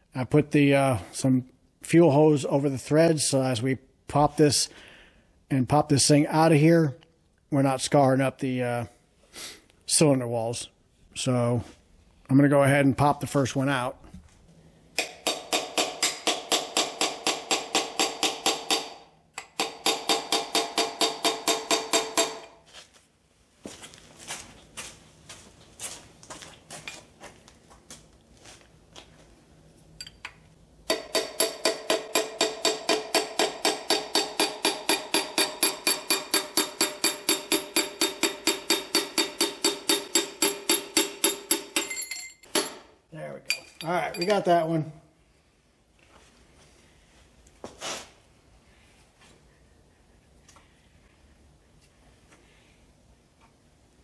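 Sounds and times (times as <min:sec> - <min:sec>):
hammer tapping metal rod: 0:15.0 - 0:22.5, 0:30.0 - 0:42.8.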